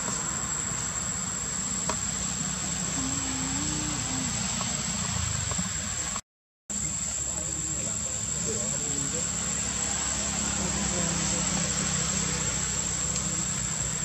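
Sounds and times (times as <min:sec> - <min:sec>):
high-pitched insect drone: 0:00.1 - 0:05.2, 0:06.7 - 0:14.0.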